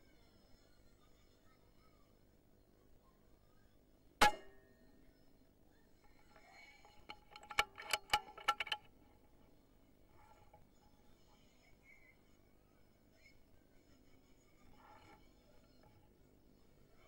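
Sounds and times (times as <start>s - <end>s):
sharp clicks and knocks: 6.8s - 9.0s.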